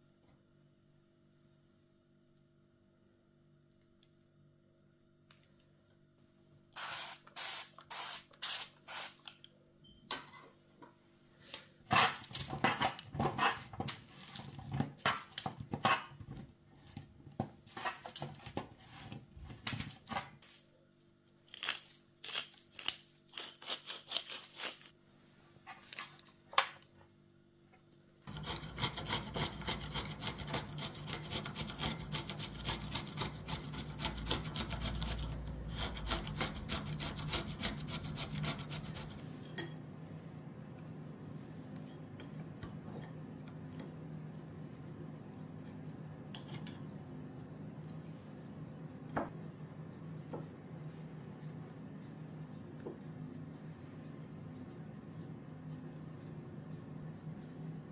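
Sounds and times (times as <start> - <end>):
scraping strokes on a board: 28.3 - 39.3.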